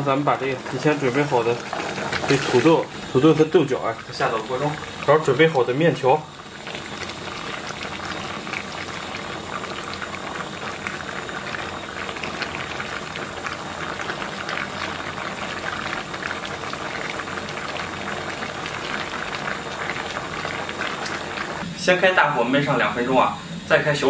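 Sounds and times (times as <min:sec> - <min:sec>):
liquid bubbling in a pot: 0:00.0 - 0:21.9.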